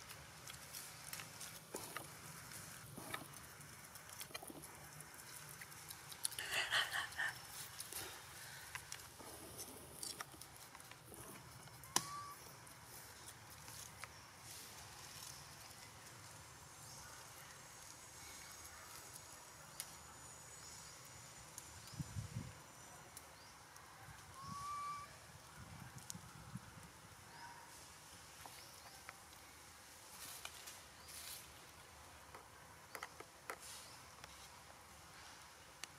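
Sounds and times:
soft rustle: 0.0 - 6.4, 27.6 - 32.5, 33.2 - 35.9.

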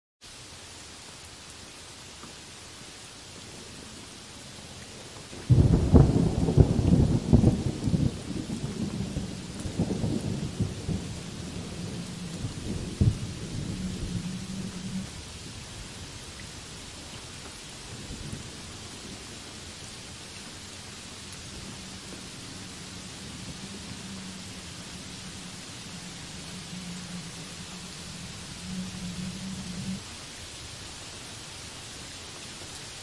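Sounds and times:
heavy rain on leaves: 0.2 - 33.0
thunder cracking and rumbling: 5.5 - 15.8, 17.9 - 30.1.

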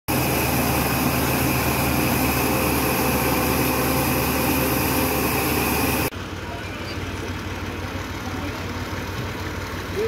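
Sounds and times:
cotton gin whirring: 0.1 - 6.1
low engine hum: 0.1 - 10.0.

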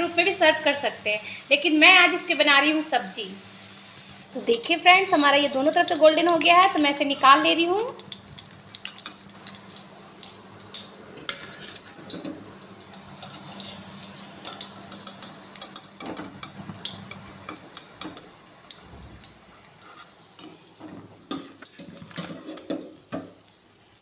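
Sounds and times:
hot oil sizzling: 0.0 - 24.0
strainer scraping metal pan: 4.5 - 6.4, 13.2 - 14.2.

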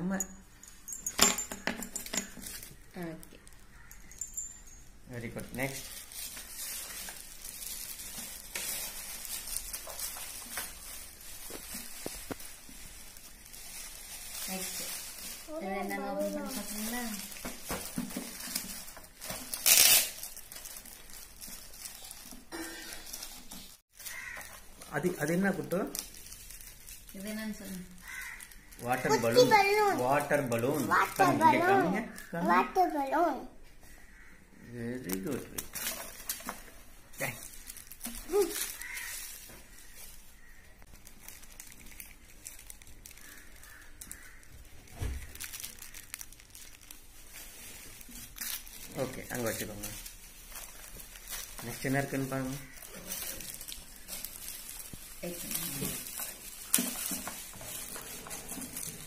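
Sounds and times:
foil gift wrap crinkling: 1.9 - 33.0, 34.9 - 59.0.

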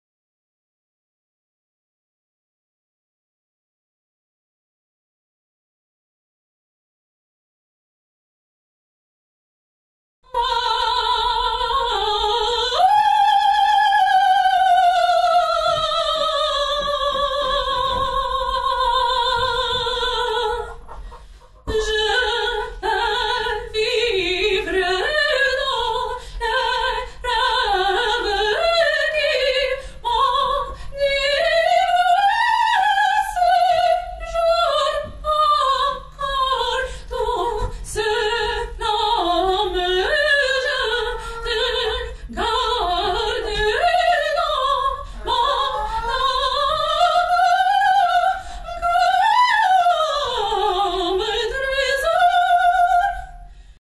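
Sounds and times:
opera singing high voice: 10.3 - 21.0, 21.7 - 53.5.

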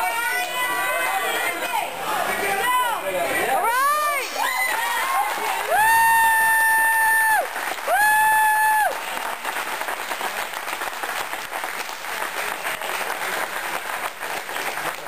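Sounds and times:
crowd applauding: 3.8 - 15.0.

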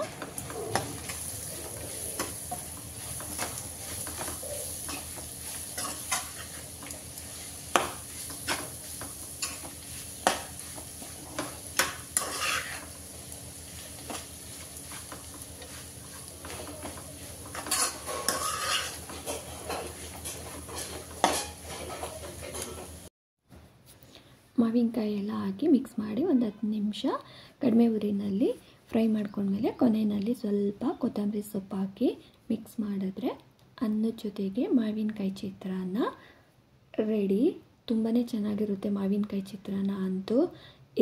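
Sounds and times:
metal spoon scraping a pan: 0.0 - 13.0, 13.7 - 22.9
frying sizzle: 0.0 - 23.1.

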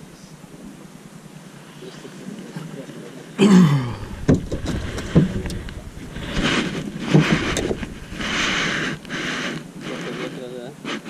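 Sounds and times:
thuds and knocks on wooden boat: 4.0 - 8.3.

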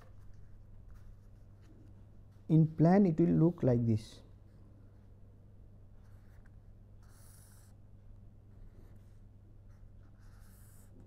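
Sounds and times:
steady low hum: 0.0 - 11.0
pen scratching on paper: 6.0 - 7.8, 9.7 - 11.0.

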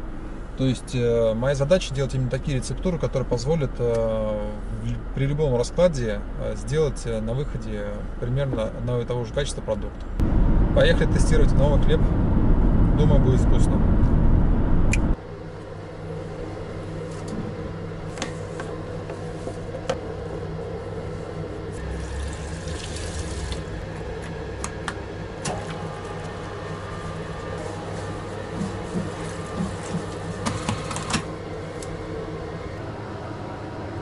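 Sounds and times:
water pouring into steel bowl: 21.8 - 23.8.

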